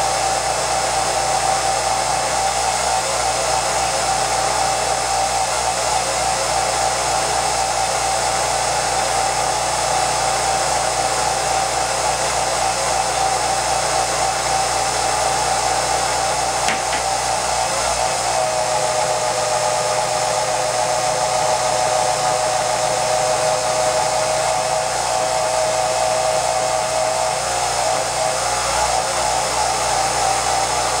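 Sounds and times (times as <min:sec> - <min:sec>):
film projector whirring: 0:00.0 - 0:31.0
projector click: 0:16.7 - 0:17.2.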